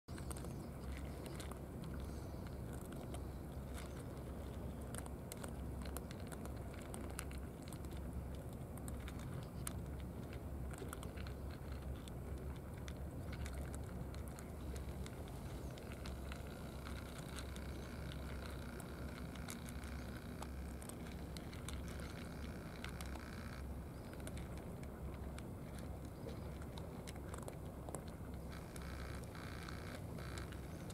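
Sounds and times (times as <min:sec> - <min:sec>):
cats crunching dry kibble: 0:00.1 - 0:30.9.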